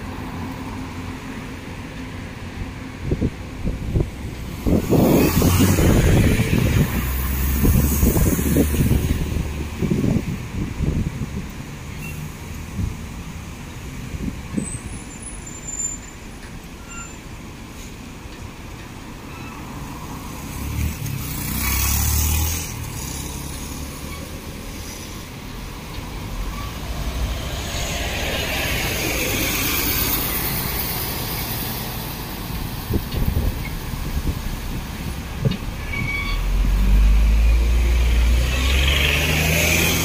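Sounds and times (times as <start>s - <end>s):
street traffic noise: 0.0s - 40.0s
heavy vehicle passing: 4.0s - 10.2s, 20.2s - 35.8s
vehicle passing: 26.3s - 32.0s, 36.6s - 40.0s.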